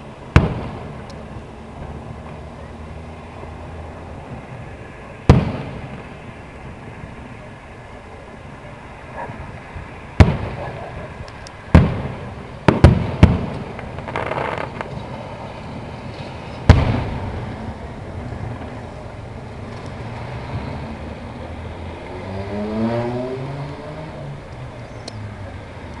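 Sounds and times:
fireworks crackle: 0.0s - 2.5s, 4.2s - 7.8s, 9.4s - 20.8s
fireworks bangs: 0.3s - 1.1s, 5.2s - 6.8s, 10.1s - 19.1s.

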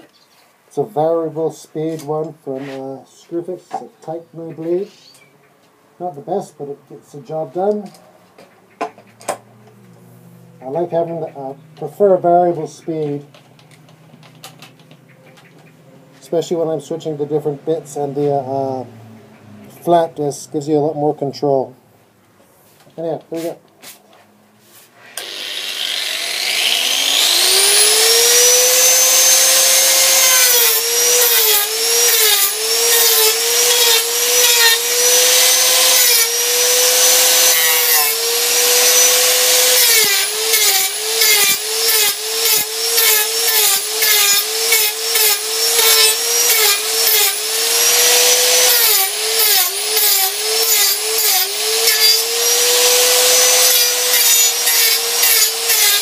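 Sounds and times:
angle grinder motor: 25.0s - 56.0s
bit rasping wood: 25.0s - 56.0s.

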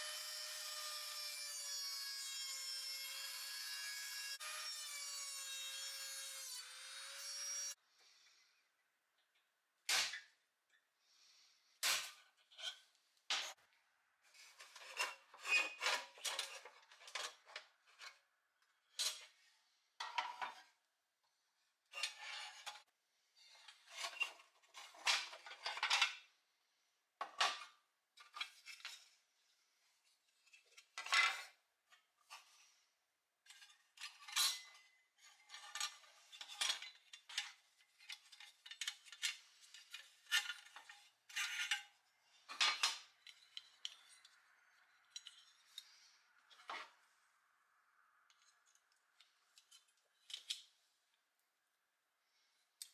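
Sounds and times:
metal toy parts clinking and rattling: 48.3s - 50.7s.

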